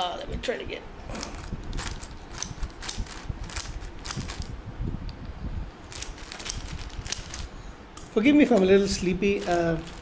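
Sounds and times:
plastic bag crinkling: 0:01.2 - 0:04.6, 0:05.9 - 0:07.6, 0:08.6 - 0:10.0.

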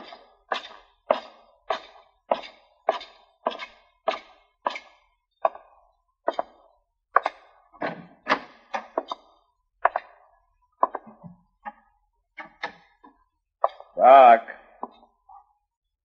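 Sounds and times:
boot footsteps on wooden boards: 0:00.0 - 0:06.6, 0:10.8 - 0:11.8.

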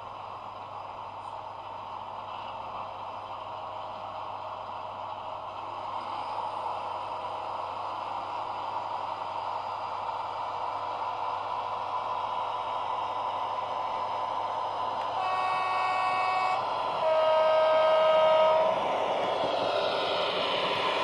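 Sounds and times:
model train running hum: 0:00.0 - 0:21.0
train horn blasts: 0:15.0 - 0:18.9.

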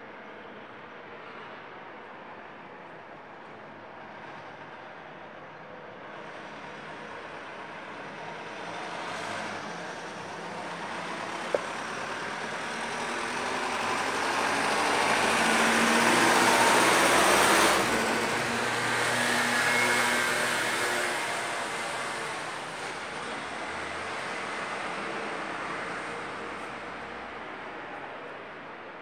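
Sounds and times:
truck driving past: 0:08.4 - 0:27.4.

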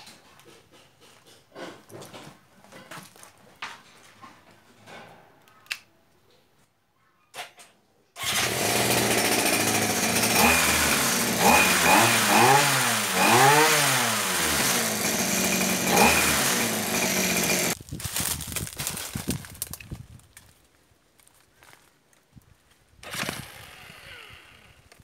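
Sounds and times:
chainsaw engine revving: 0:08.2 - 0:17.8, 0:23.0 - 0:25.0
rustling and crackling: 0:17.8 - 0:23.0.

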